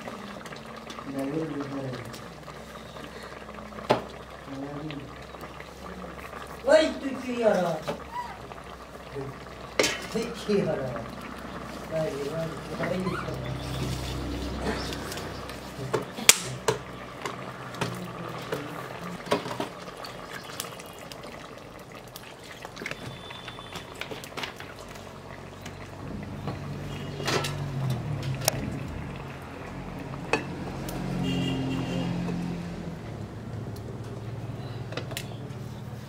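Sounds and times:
curry bubbling in metal pot: 0:00.0 - 0:36.0.

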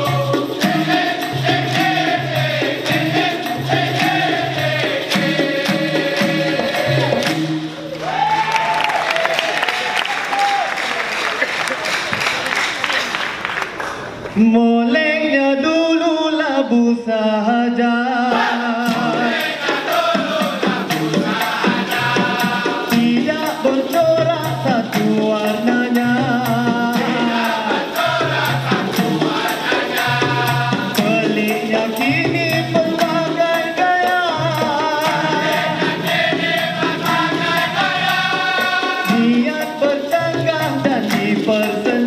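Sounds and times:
man singing lead: 0:00.0 - 0:07.3, 0:14.4 - 0:20.4, 0:21.6 - 0:35.9, 0:37.2 - 0:42.0
chorus singing: 0:00.0 - 0:09.9, 0:14.9 - 0:42.0
hand percussion beat: 0:00.0 - 0:10.7, 0:18.3 - 0:42.0
hand clapping: 0:05.1 - 0:14.4.

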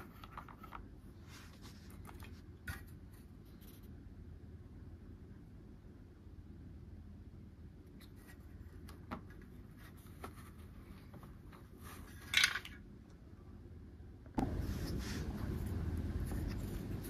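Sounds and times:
scrape or rustle: 0:01.2 - 0:03.9, 0:14.4 - 0:17.0.

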